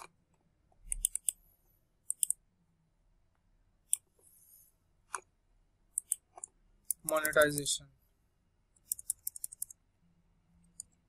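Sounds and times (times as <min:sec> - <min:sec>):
computer mouse clicking: 0:00.9 - 0:01.4, 0:02.1 - 0:02.4, 0:03.9 - 0:04.1, 0:05.9 - 0:07.7, 0:08.8 - 0:09.8, 0:10.6 - 0:11.0.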